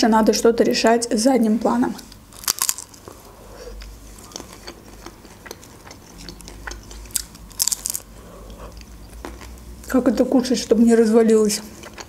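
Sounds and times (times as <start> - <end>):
wet chewing sounds: 2.1 - 9.8, 11.6 - 12.0
crunchy bite: 2.4 - 3.0, 6.2 - 8.1.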